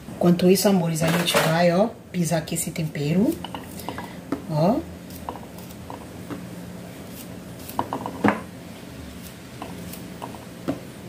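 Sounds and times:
knife cutting garlic: 5.1 - 6.1, 7.0 - 8.2, 9.1 - 10.8.

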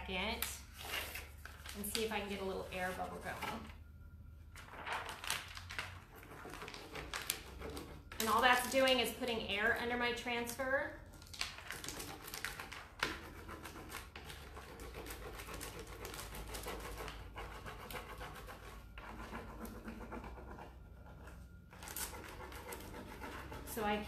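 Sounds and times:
transfer sheet rubbing on wood: 13.1 - 24.0.

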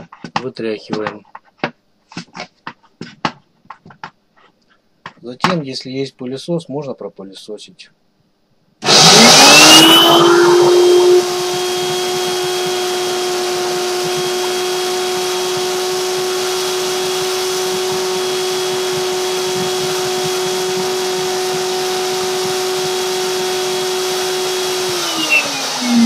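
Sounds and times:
vacuum cleaner motor whine: 8.8 - 26.0.

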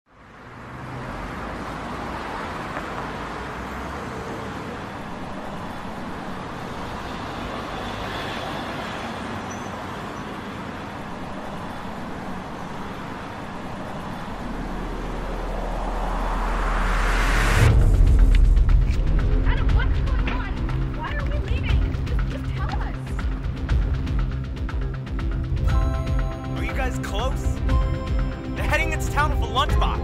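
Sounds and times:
passing cars hissing: 0.6 - 18.3
low rumble: 13.6 - 26.3.

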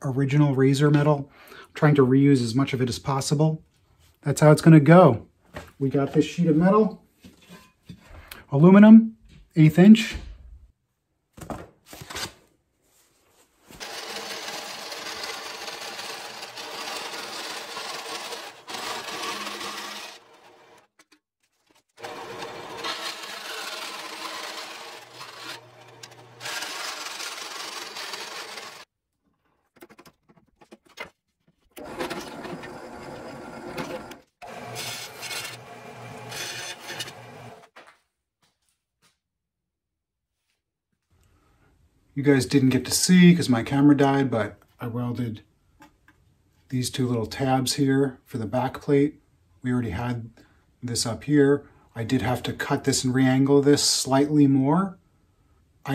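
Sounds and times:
band saw cutting metal sheet: 13.8 - 21.2, 22.0 - 28.9, 31.8 - 37.7.

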